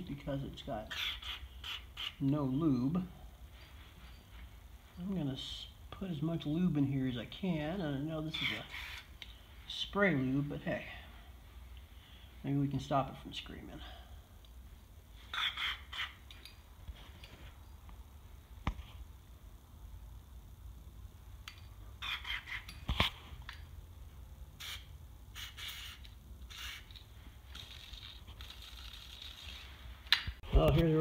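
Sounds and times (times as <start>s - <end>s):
aerosol spray hissing: 24.6s - 26.9s.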